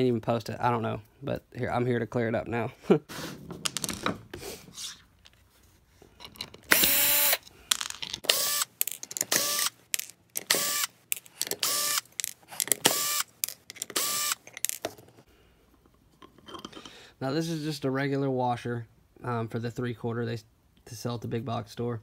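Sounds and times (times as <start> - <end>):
cordless drill whining bursts: 6.7 - 7.4, 8.2 - 8.7, 9.3 - 9.7, 10.5 - 10.9, 11.6 - 12.0, 12.8 - 13.3, 14.0 - 14.4.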